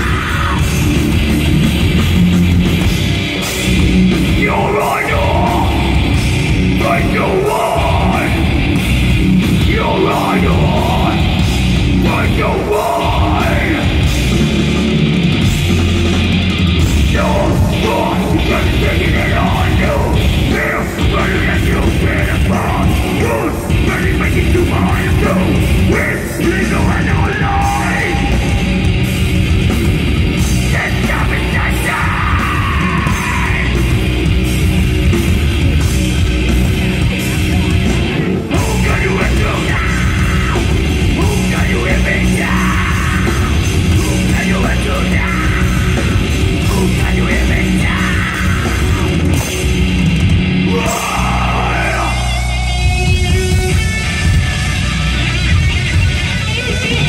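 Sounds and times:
person singing and yelling: 0.0 - 1.0, 4.1 - 8.8, 9.4 - 14.4, 17.0 - 29.0, 30.6 - 34.1, 37.0 - 49.4, 50.6 - 54.8
bass guitar: 0.0 - 57.0
drums: 0.0 - 57.0
electric guitar: 0.0 - 57.0.

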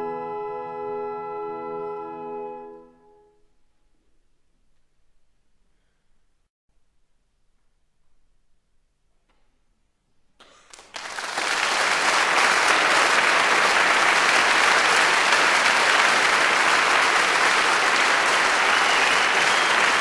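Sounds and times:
audience applause: 10.4 - 20.0.

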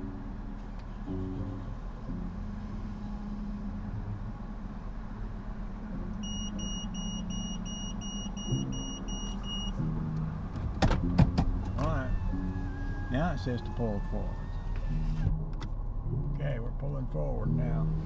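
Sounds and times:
short high electronic beeps: 6.2 - 9.8.

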